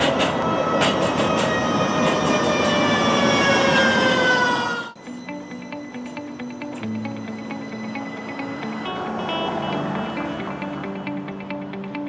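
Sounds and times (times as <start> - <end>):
streetcar wheel and rail noise: 0.0 - 12.0.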